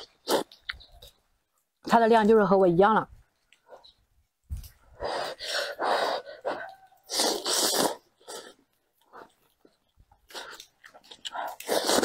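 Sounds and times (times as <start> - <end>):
slurping noodle soup: 0.0 - 1.1, 5.0 - 12.0.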